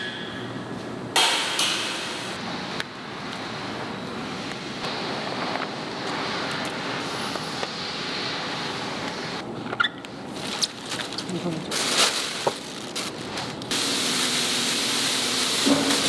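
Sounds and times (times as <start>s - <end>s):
factory background noise: 0.0s - 16.0s.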